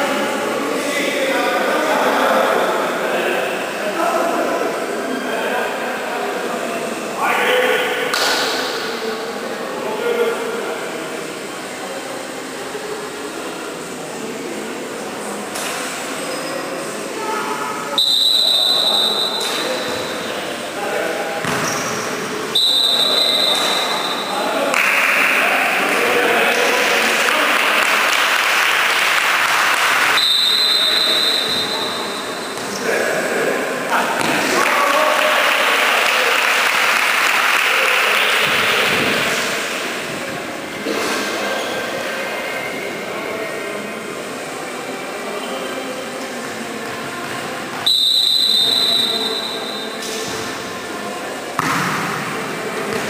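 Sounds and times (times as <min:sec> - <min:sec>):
sports hall background noise: 0:00.0 - 0:53.0
referee's whistle blast: 0:18.0 - 0:19.6, 0:22.5 - 0:24.4, 0:30.2 - 0:32.2, 0:47.9 - 0:50.0
spectators applauding: 0:26.6 - 0:30.2, 0:34.6 - 0:39.0.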